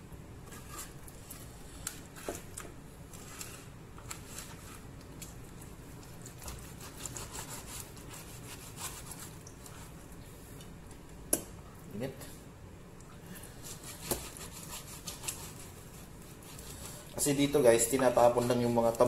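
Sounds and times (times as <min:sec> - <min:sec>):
knife slicing fat on board: 0:13.6 - 0:15.6.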